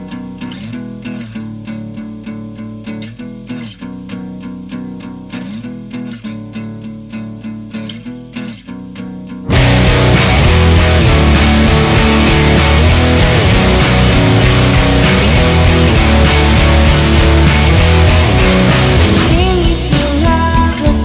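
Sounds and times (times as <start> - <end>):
plucked guitar-like notes: 0.0 - 21.0
sustained bass line: 9.5 - 21.0.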